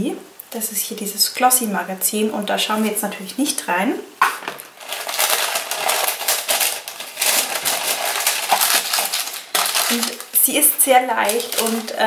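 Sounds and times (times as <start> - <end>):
paper and packaging crinkling: 4.4 - 12.0.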